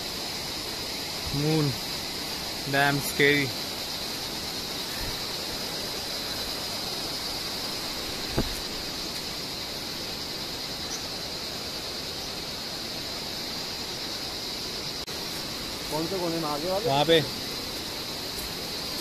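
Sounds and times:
even hiss: 0.0s - 19.0s
short knock: 8.3s - 8.6s.

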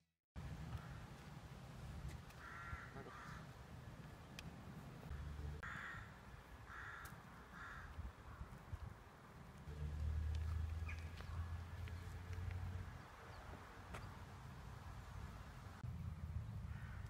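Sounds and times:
crows cawing faintly: 0.7s - 1.3s, 2.3s - 3.6s, 5.1s - 8.8s, 10.4s - 12.1s, 16.6s - 17.0s.

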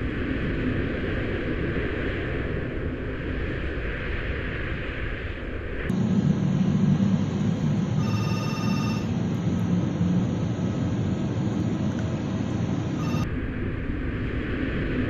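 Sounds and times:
low aircraft rumble: 0.0s - 15.0s
ringing electronic tone: 7.8s - 9.3s, 12.7s - 13.3s.

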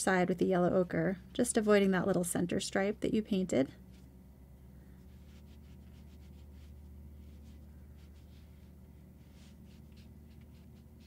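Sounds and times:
steady low hum: 0.0s - 11.0s
brush scratching on paper: 5.0s - 11.0s.

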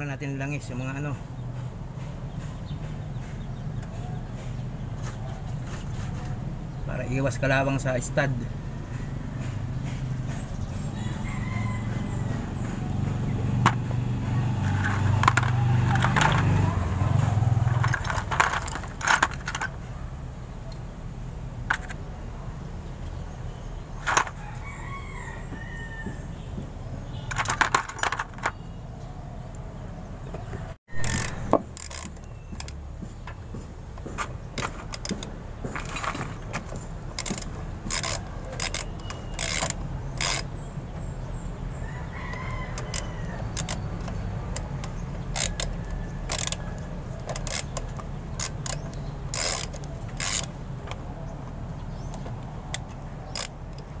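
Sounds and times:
rooster crowing: 10.8s - 13.0s, 24.3s - 26.5s, 41.7s - 43.7s
metal clicks of socket wrench: 31.0s - 32.8s, 37.2s - 40.5s, 42.8s - 51.0s, 52.1s - 53.9s.

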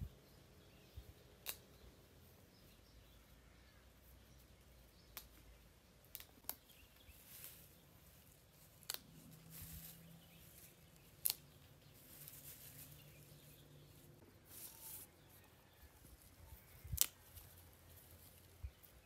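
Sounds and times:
stems snapping: 1.4s - 1.8s, 5.1s - 13.6s, 16.6s - 19.0s
herbs rustling: 4.0s - 19.0s.

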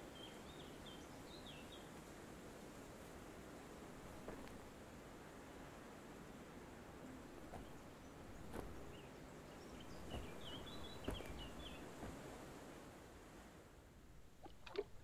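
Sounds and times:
bird song: 0.0s - 2.0s, 7.2s - 12.4s
footsteps on dirt path: 7.4s - 9.0s, 9.8s - 12.6s.

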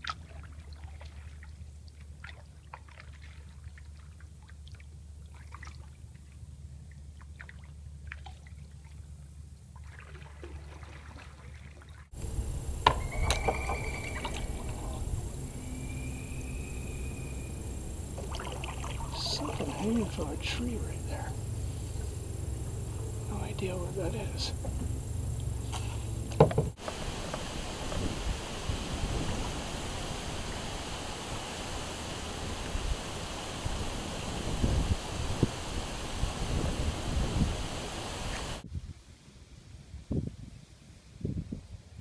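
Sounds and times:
low steady hum: 0.0s - 38.7s
water dripping off paddle: 9.9s - 28.0s
thin high whistle: 12.7s - 19.2s.

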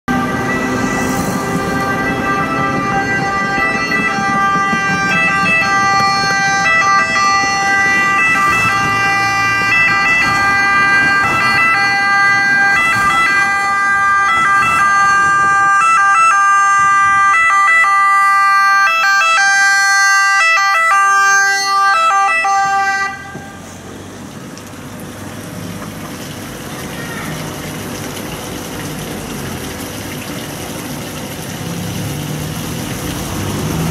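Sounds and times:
two-tone ambulance siren: 0.1s - 23.7s.

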